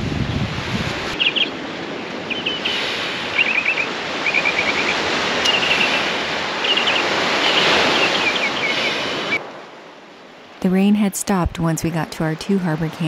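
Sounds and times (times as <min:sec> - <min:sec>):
small waves washing onto beach: 0:00.0 - 0:10.6
bird chirping trills: 0:01.2 - 0:01.6, 0:02.2 - 0:09.4.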